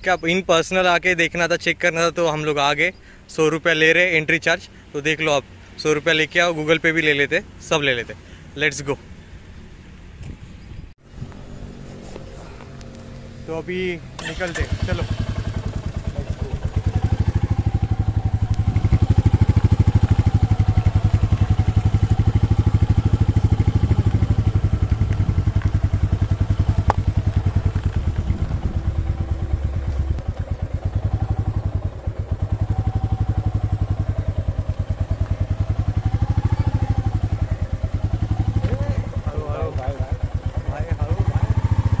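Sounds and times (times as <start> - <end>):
motorcycle engine thumping: 15.2 - 32.8, 33.5 - 41.9.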